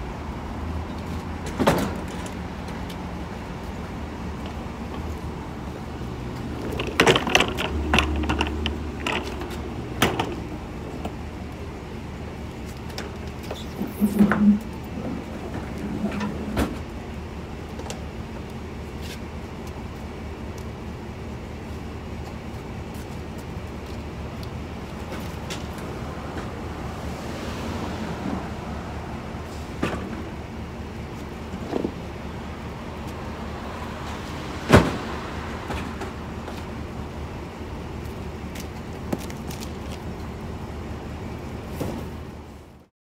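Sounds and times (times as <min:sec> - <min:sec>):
street traffic: 0:00.0 - 0:42.9
wind: 0:00.0 - 0:42.9
cart wheels rumbling on pavement: 0:00.9 - 0:11.6
plastic knocks and clatters: 0:06.7 - 0:10.4.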